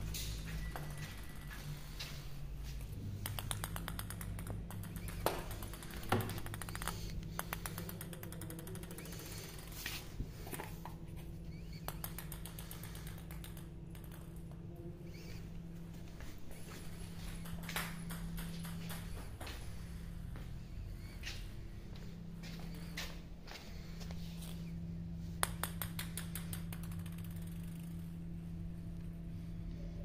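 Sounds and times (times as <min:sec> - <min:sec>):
steady low hum: 0:00.0 - 0:30.0
ball clicking across hard floor: 0:03.2 - 0:09.7, 0:11.6 - 0:14.6, 0:17.3 - 0:19.5, 0:25.4 - 0:28.3.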